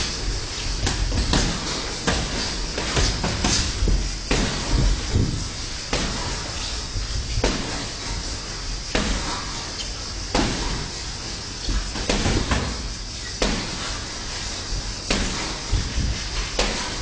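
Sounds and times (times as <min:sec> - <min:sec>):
footwork on ring canvas: 0:00.0 - 0:17.0
steady hiss: 0:00.0 - 0:17.0.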